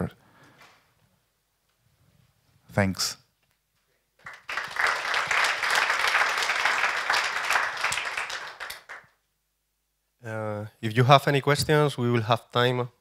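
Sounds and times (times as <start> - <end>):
audience applauding: 4.2 - 9.1.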